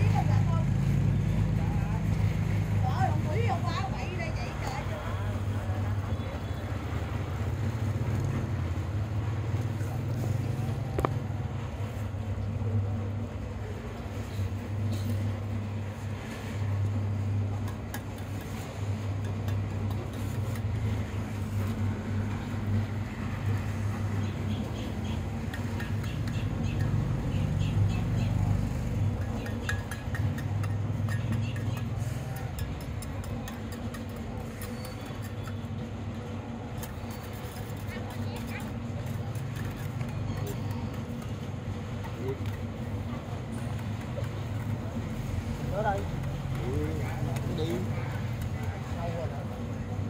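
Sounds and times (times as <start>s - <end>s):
light ticking and scraping: 24.2s - 49.0s.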